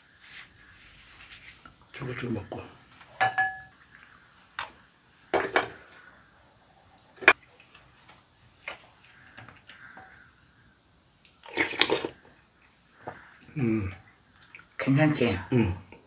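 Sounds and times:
eating sounds: 6.8s - 14.8s.

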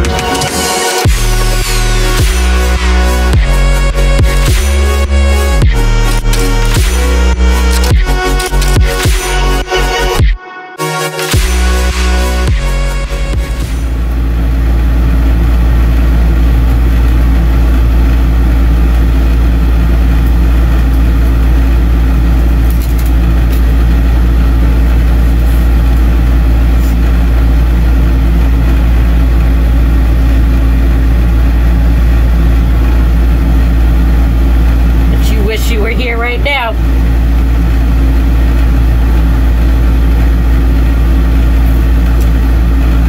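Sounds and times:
vehicle engine rumble: 11.4s - 43.0s.

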